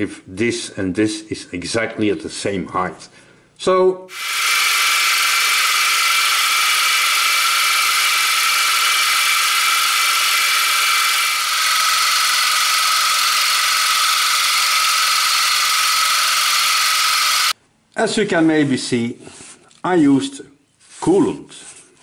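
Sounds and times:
milling machine cutting whine: 4.1s - 17.6s.

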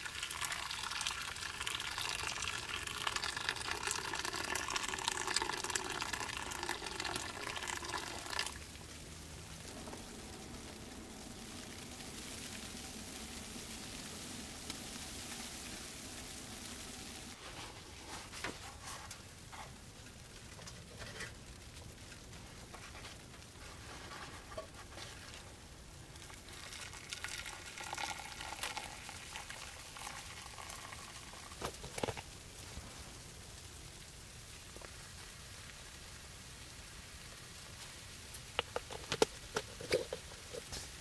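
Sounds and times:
coffee simmering with a sizzle: 0.0s - 41.0s
coffee pattering into a mug: 26.5s - 32.3s.

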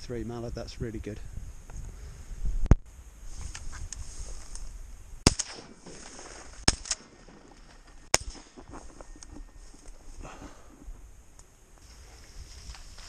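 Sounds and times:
shotgun shots: 5.2s - 6.0s.

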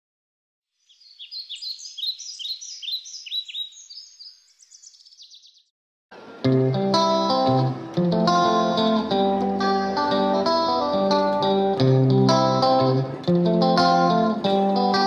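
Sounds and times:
bird singing: 0.7s - 5.7s
music: 6.2s - 15.0s.

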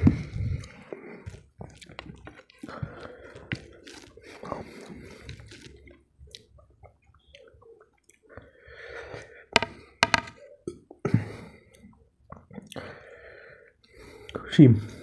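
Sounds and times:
wet squishing of rice by hand: 0.1s - 8.5s
chewing: 0.1s - 9.3s.

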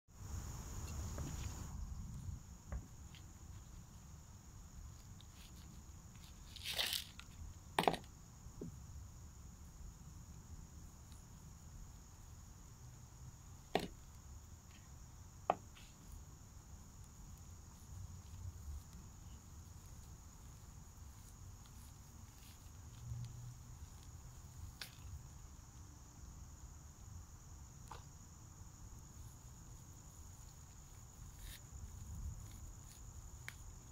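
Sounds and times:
insect chirring: 0.1s - 33.9s.

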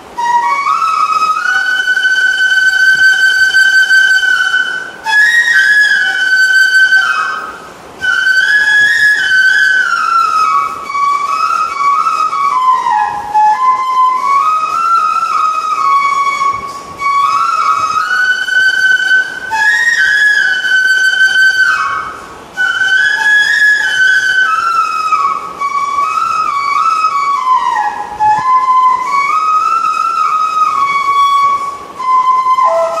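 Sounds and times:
bamboo flute melody: 0.0s - 33.0s.

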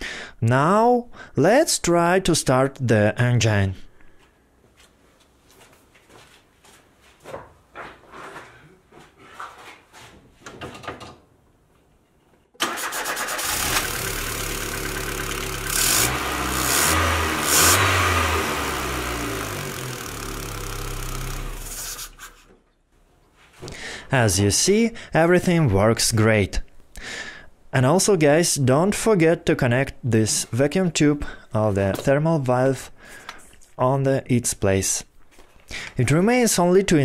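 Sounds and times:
car engine revving: 13.0s - 22.3s.

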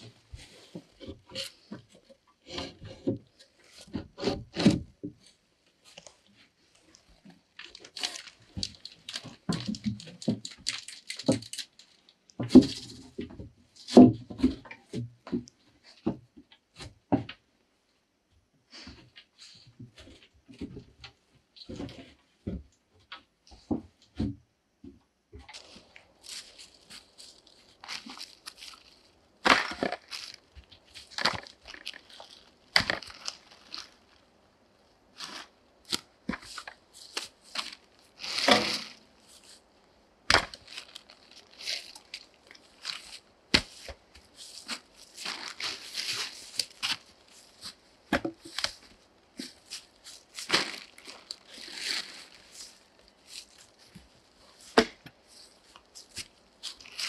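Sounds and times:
plastic tarp rustling: 2.7s - 13.2s, 25.5s - 34.3s, 35.1s - 39.7s, 40.3s - 57.0s.

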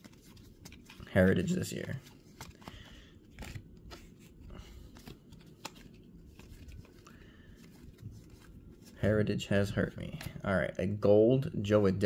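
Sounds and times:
cards clicking and rustling: 0.0s - 9.0s, 10.0s - 10.4s.

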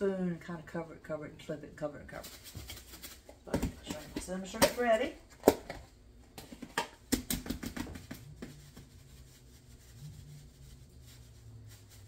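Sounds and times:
faint low hum: 7.9s - 12.0s.

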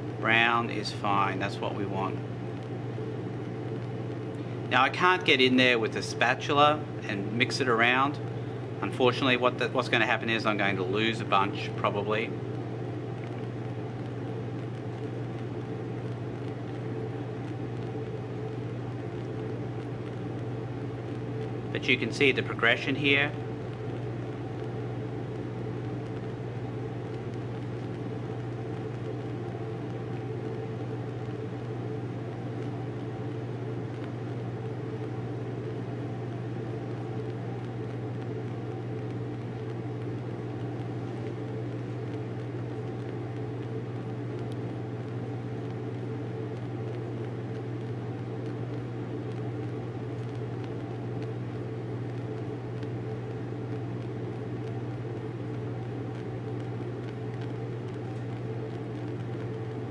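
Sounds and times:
bunsen burner flame: 0.0s - 59.9s.

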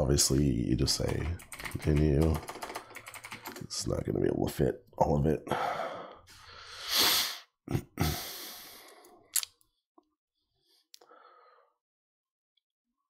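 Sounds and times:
breath close to microphone: 5.5s - 9.2s.

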